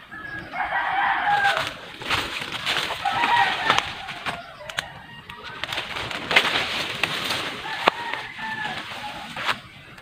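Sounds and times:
rooster crowing: 0:00.0 - 0:02.0, 0:02.8 - 0:06.2, 0:07.0 - 0:09.6
footsteps on dry leaves and twigs: 0:00.3 - 0:10.0.

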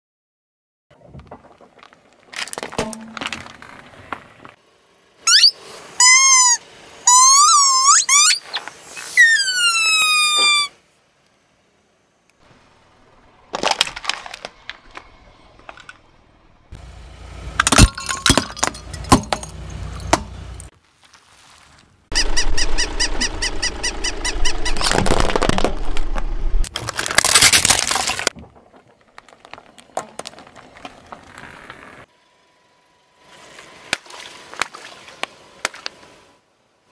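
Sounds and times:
tyre rumbling on asphalt: 0:23.3 - 0:32.1
tyre crushing objects: 0:24.8 - 0:31.7.

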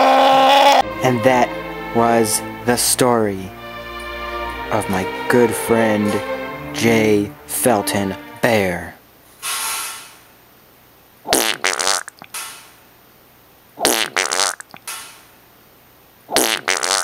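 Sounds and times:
breathy hiss: 0:09.4 - 0:10.2.

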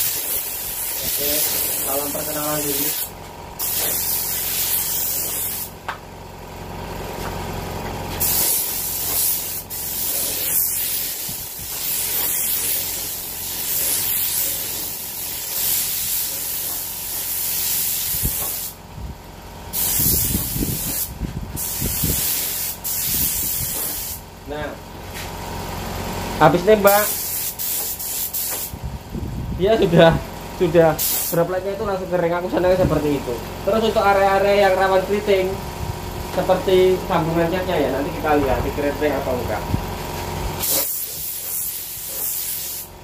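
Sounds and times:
spray gun hissing: 0:00.0 - 0:05.8, 0:08.2 - 0:18.8, 0:19.8 - 0:24.2, 0:26.9 - 0:28.7, 0:31.0 - 0:31.4, 0:40.6 - 0:43.0.

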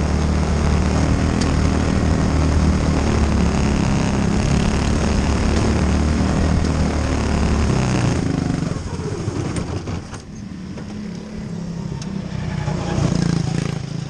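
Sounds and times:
small racing car engine: 0:00.0 - 0:14.0.

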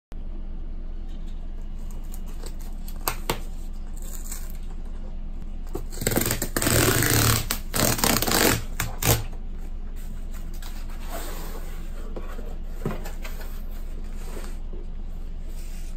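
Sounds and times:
cardboard ripping: 0:05.8 - 0:09.3.

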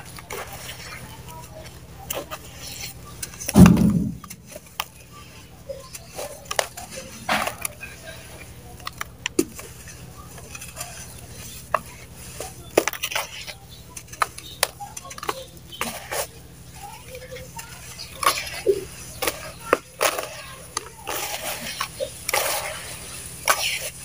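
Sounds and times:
heavy thud: 0:03.6 - 0:04.5.

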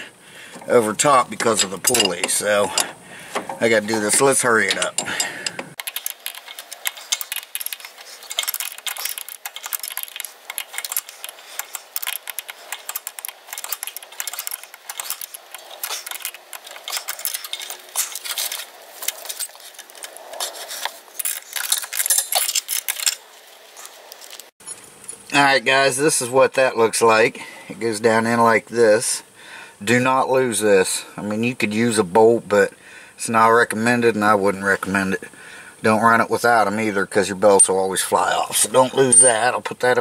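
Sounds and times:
metal knocking on metal: 0:01.3 - 0:05.8
wrench clinking on bolt: 0:01.3 - 0:20.1.

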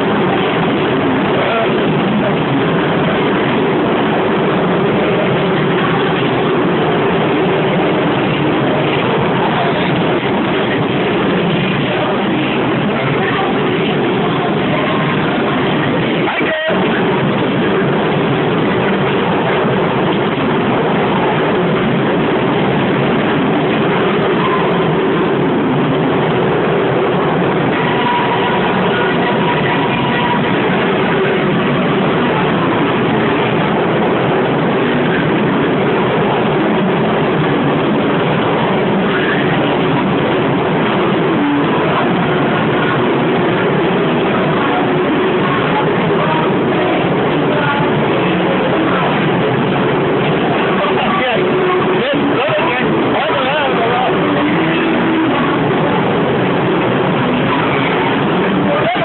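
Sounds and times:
fairground ride rumbling: 0:00.0 - 0:59.0.

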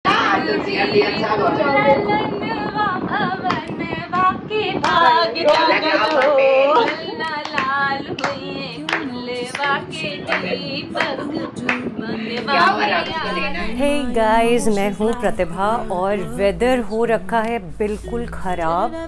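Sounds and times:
women singing together: 0:00.1 - 0:19.0
hand clapping: 0:04.8 - 0:12.5.

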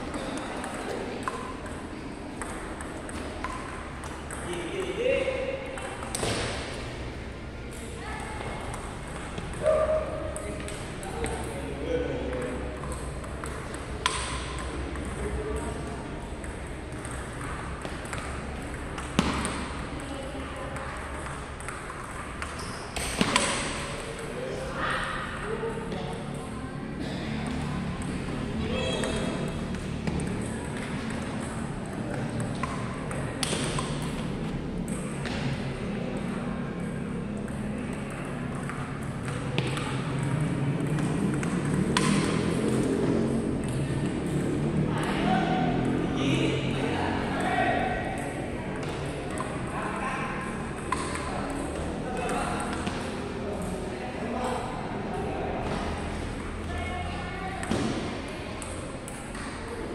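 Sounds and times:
low hum in hall: 0:00.0 - 0:59.9
table tennis ball clicks: 0:16.4 - 0:20.1.

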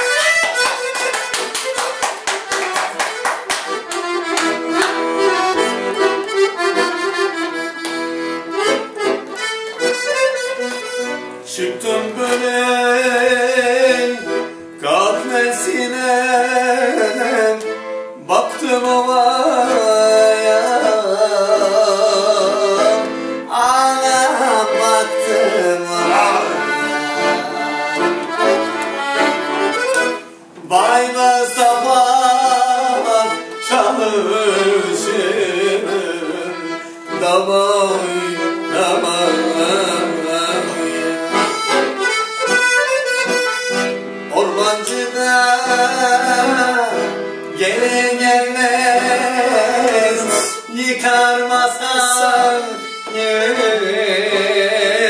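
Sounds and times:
piano accordion dance tune: 0:00.0 - 0:55.0.

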